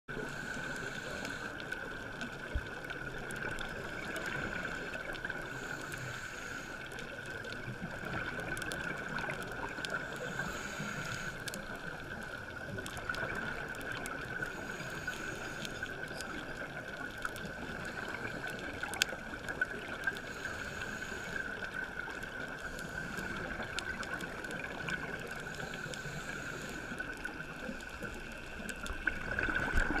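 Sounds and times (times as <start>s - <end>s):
muffled underwater hiss: 0.1s - 30.0s
diver's bubbles gurgling: 11.5s - 30.0s.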